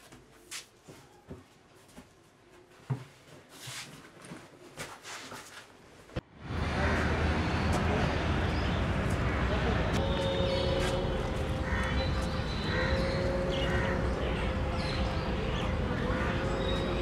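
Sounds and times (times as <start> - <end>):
outdoor background noise with hum: 0.0 - 17.0.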